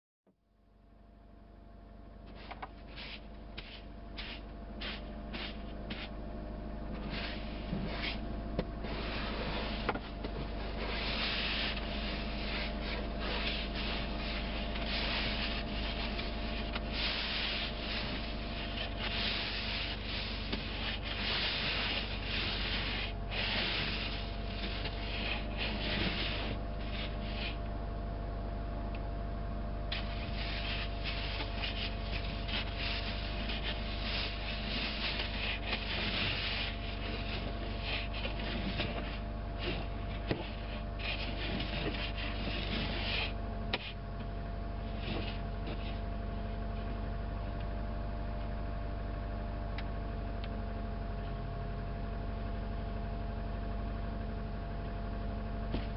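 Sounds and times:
steady low hum: 0:00.4 - 0:55.9.

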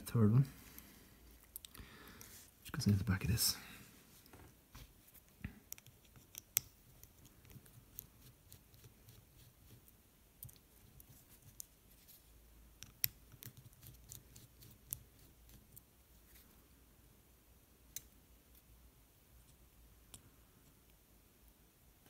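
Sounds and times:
small clicks of screwdriver and parts: 0:05.6 - 0:08.1, 0:17.9 - 0:18.6.

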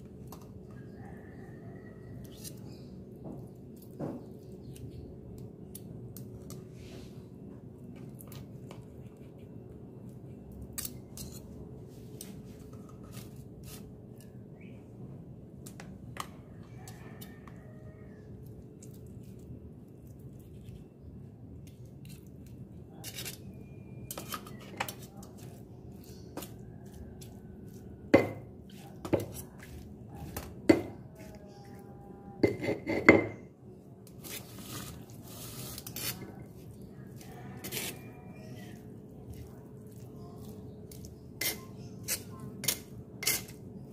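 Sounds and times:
stone pestle knocking in mortar: 0:28.2 - 0:28.5.

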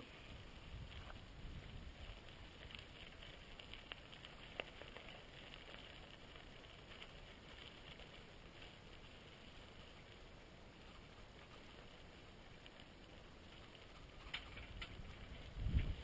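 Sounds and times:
wind rumble on microphone: 0:00.0 - 0:06.1, 0:13.5 - 0:16.0
bicycle tyres rolling hiss: 0:00.0 - 0:16.0.

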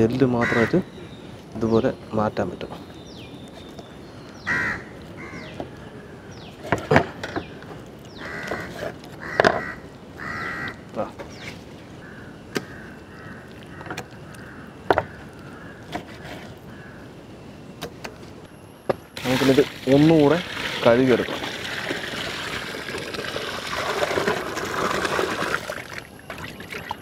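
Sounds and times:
crows cawing: 0:00.4 - 0:00.9, 0:04.4 - 0:05.6, 0:08.2 - 0:10.9, 0:12.0 - 0:16.0, 0:16.6 - 0:17.1.

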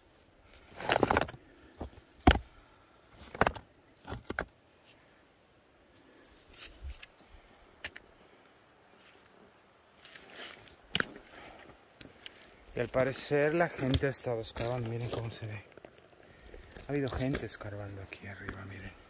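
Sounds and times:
stones clinking under footsteps: 0:00.5 - 0:02.4, 0:10.0 - 0:19.0.

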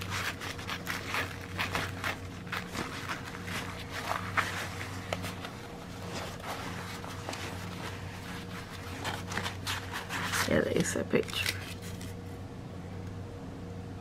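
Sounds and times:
canvas rustling: 0:00.0 - 0:10.6.

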